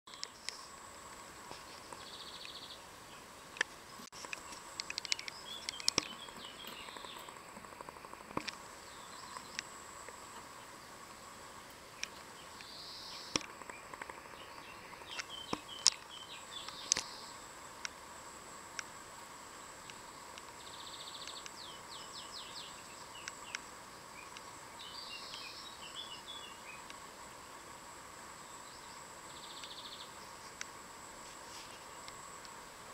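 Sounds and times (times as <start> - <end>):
steady high hiss: 0.1 - 32.9
light sharp taps and clicks: 3.6 - 7.3.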